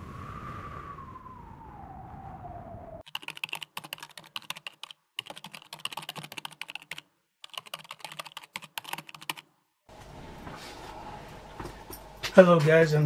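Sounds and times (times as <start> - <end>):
computer keyboard typing: 3.0 - 9.5
room hum: 9.9 - 13.0.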